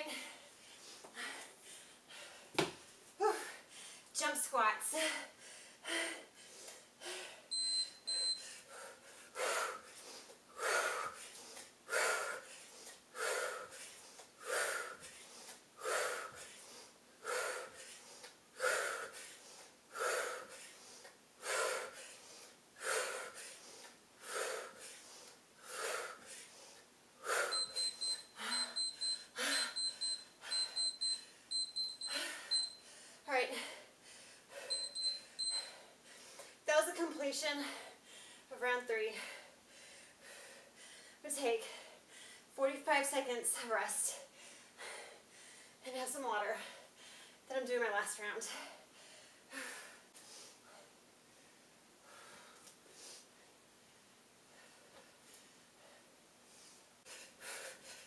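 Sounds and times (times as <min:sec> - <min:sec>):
timer beeping: 0:07.5 - 0:08.4, 0:27.5 - 0:32.8, 0:34.6 - 0:35.8
woman gasping for breath: 0:32.1 - 0:36.5.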